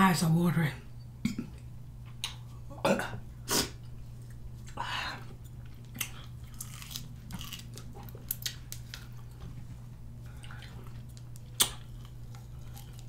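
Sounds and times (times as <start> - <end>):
wet chewing and biting: 5.5 - 9.4, 10.3 - 13.0.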